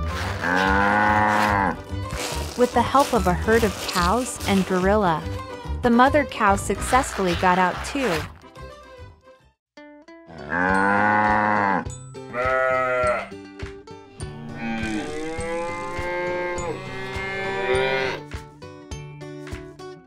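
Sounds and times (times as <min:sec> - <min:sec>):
light background music: 0:00.0 - 0:09.5, 0:10.4 - 0:20.0
cows mooing: 0:10.4 - 0:13.3, 0:14.4 - 0:18.2.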